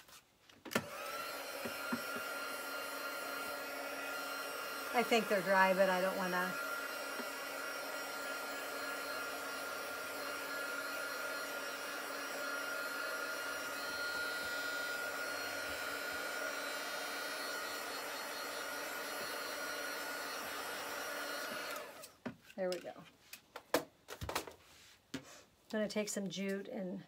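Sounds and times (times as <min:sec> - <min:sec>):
heat tool blowing air with whine: 0:00.8 - 0:22.1.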